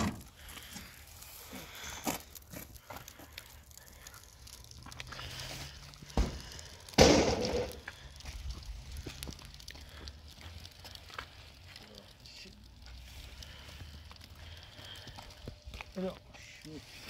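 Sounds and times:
low thud on ground: 0:07.0 - 0:07.7
metal panel crashing: 0:07.0 - 0:07.8.

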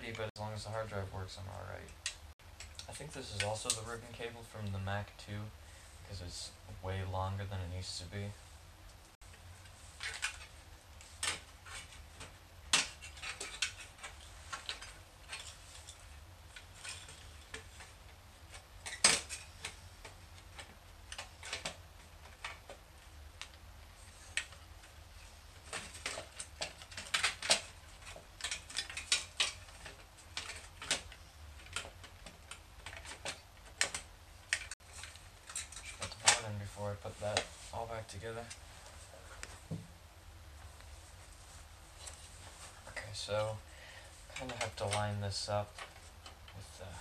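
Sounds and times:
metal clicks and clatter: 0:10.0 - 0:22.8, 0:25.6 - 0:36.5.

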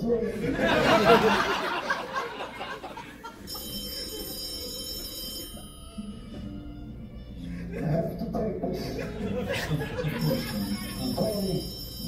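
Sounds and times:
audience laughter: 0:00.2 - 0:04.4, 0:08.7 - 0:11.2
telephone ringtone: 0:03.4 - 0:06.8, 0:10.1 - 0:12.0.

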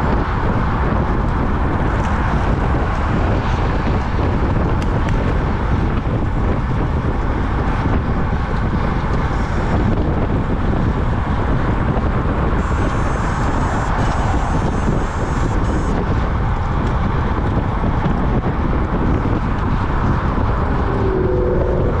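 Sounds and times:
tyre and road noise: 0:00.0 - 0:22.0
wind buffeting microphone: 0:00.0 - 0:22.0
cars driving past: 0:19.1 - 0:22.0.

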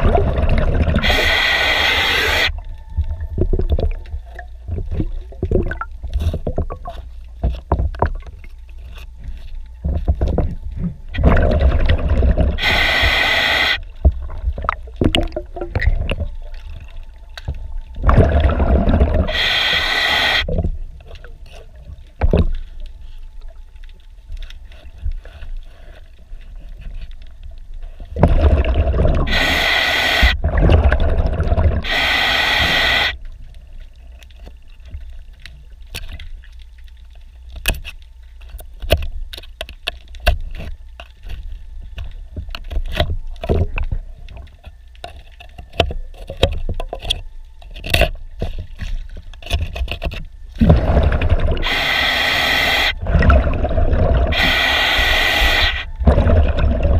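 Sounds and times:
quiet water noise: 0:00.0 - 0:56.9
diver breathing through regulator: 0:00.8 - 0:02.5, 0:12.6 - 0:13.8, 0:18.5 - 0:20.5, 0:29.2 - 0:30.5, 0:31.8 - 0:33.2, 0:50.7 - 0:56.3.

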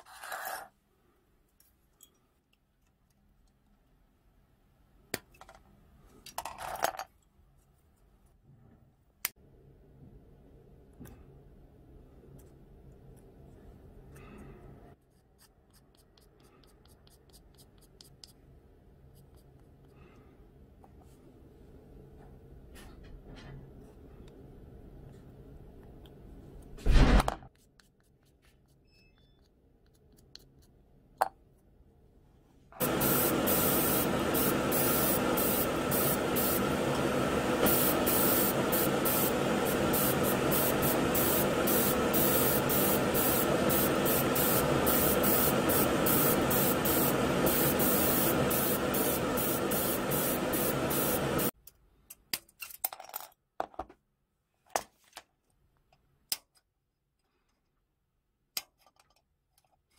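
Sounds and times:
paint spray hissing: 0:32.8 - 0:36.6, 0:37.6 - 0:51.5
spray booth hum: 0:32.8 - 0:51.5
short spray pulses: 0:37.6 - 0:51.5.

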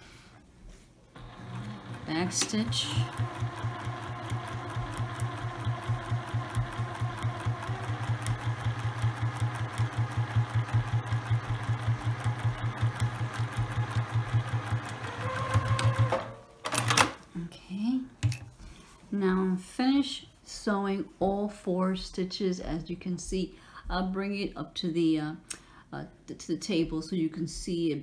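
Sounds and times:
sewing machine stitching: 0:01.2 - 0:17.2.

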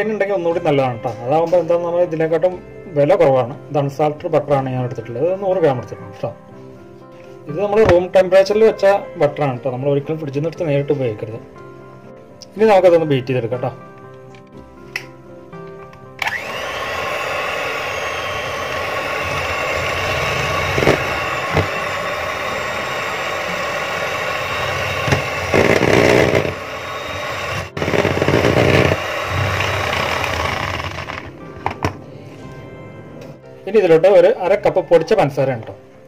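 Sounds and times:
electric hand mixer whining: 0:16.2 - 0:31.9.

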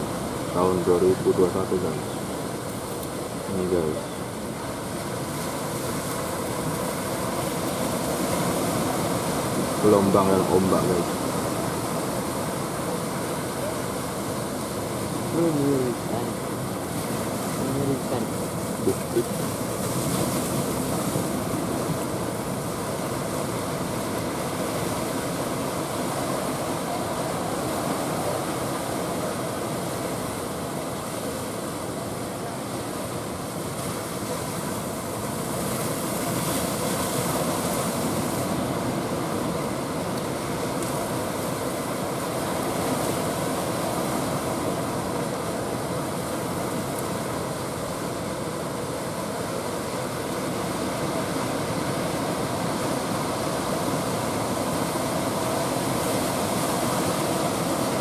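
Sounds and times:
waves breaking: 0:00.0 - 0:58.0.

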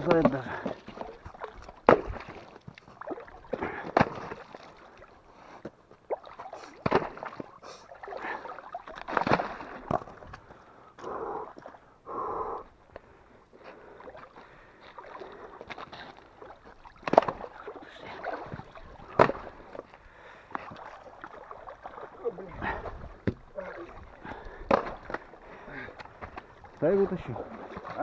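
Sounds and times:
hands splashing in water: 0:06.1 - 0:10.3, 0:14.1 - 0:19.9, 0:20.5 - 0:26.7.

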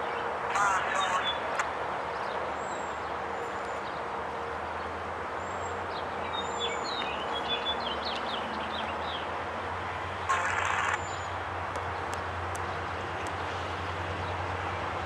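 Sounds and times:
small birds chirping: 0:05.4 - 0:09.3, 0:10.3 - 0:13.4.

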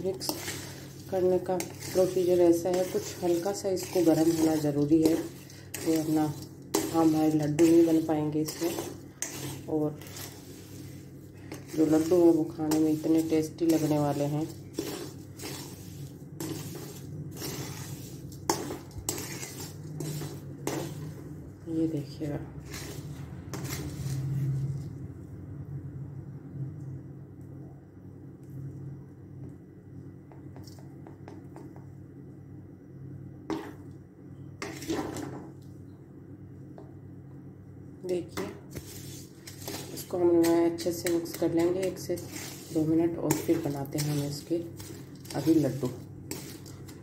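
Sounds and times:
crumbly mixture scraped on plate: 0:00.0 - 0:25.0, 0:33.5 - 0:34.0, 0:34.6 - 0:35.5, 0:38.3 - 0:47.0
steady low hum: 0:00.0 - 0:47.0.

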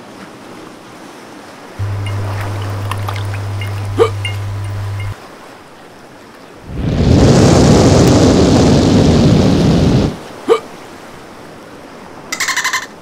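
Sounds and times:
rapid pulsed chirping: 0:01.8 - 0:05.2
rushing blast of flame: 0:06.7 - 0:10.3.

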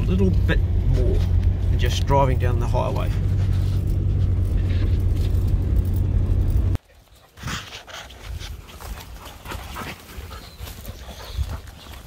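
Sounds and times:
vehicle engine rumble: 0:00.0 - 0:12.0
dogs rustling and footfalls: 0:03.2 - 0:12.0.

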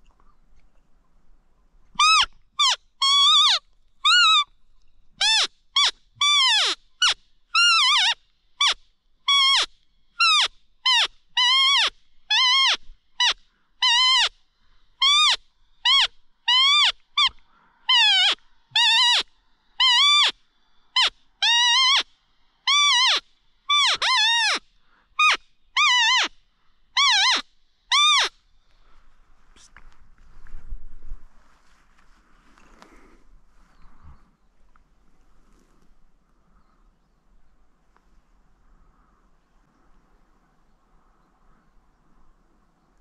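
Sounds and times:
animal calls: 0:02.0 - 0:04.5, 0:15.0 - 0:22.1, 0:22.7 - 0:26.4, 0:27.0 - 0:28.4.

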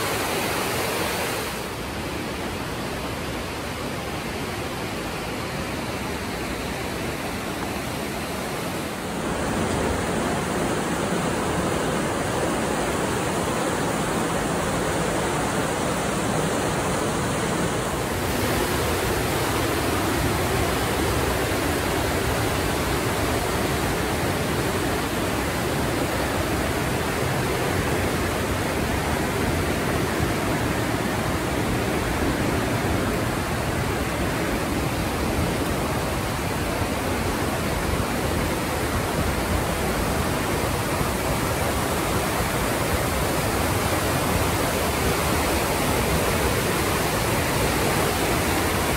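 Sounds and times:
river rushing through gorge: 0:00.0 - 0:48.9.

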